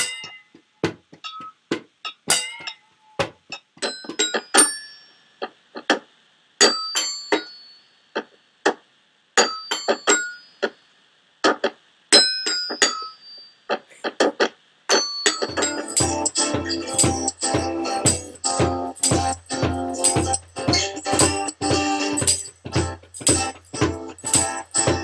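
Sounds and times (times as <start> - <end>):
clinking percussion: 1.2 - 3.2, 15.0 - 25.0.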